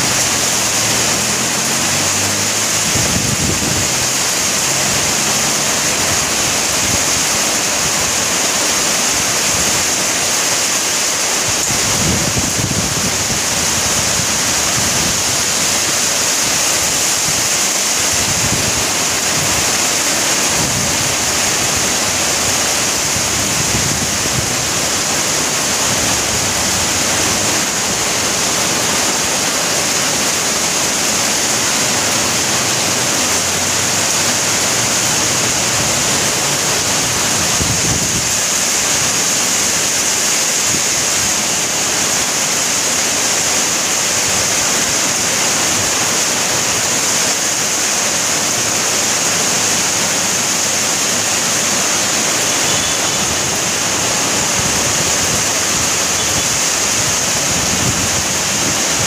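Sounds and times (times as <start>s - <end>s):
heavy rain: 0.0s - 59.0s.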